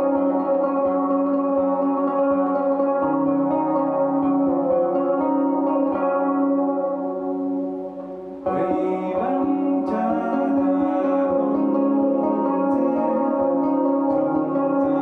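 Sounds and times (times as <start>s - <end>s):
stringed instrument through effects: 0.0s - 15.0s
man singing: 8.5s - 15.0s.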